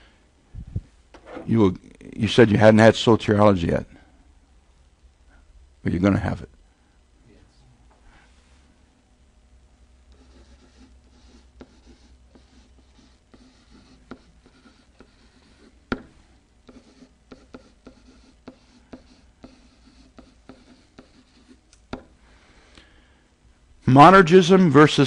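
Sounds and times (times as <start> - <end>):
pen scratching on whiteboard: 10.1 - 22.1
pen tapping: 10.2 - 16.1, 16.7 - 22.1.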